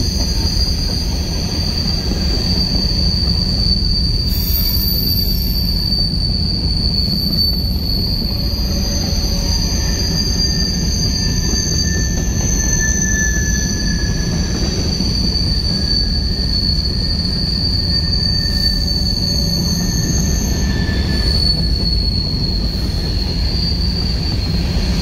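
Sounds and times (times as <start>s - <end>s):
low rumble of passing train: 0.0s - 25.0s
train wheels squealing: 0.0s - 25.0s.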